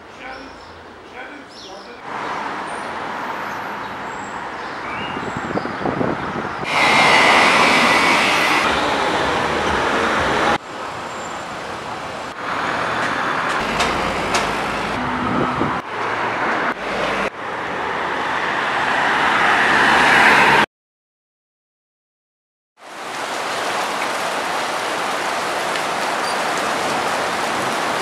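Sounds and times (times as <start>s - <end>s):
city traffic: 0.0s - 20.7s.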